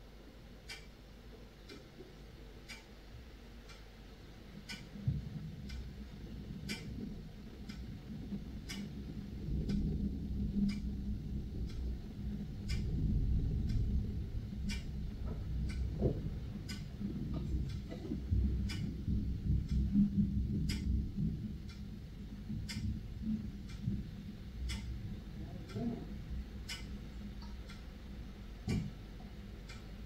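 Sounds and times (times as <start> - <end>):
clock ticking: 0.6 - 30.0
low rumble of thunder: 5.0 - 27.5.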